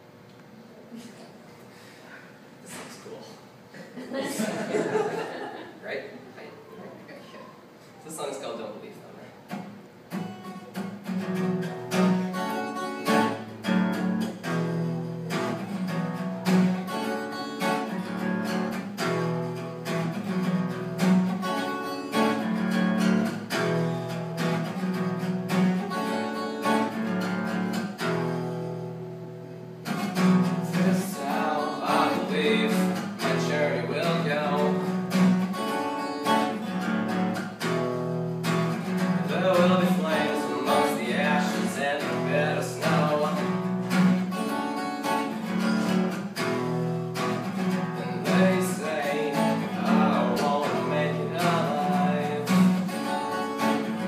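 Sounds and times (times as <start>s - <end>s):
acoustic guitar chords: 9.4s - 54.0s
man singing: 30.6s - 35.0s, 39.2s - 43.7s, 47.9s - 52.9s.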